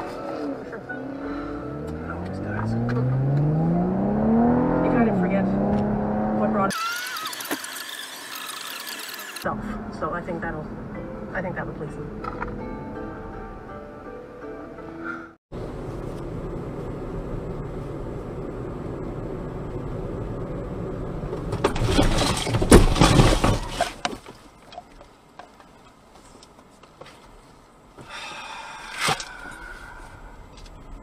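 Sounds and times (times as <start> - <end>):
road noise inside car: 0.0 - 6.9, 9.4 - 12.9, 15.5 - 31.0
car crash crunching impact: 21.4 - 24.3.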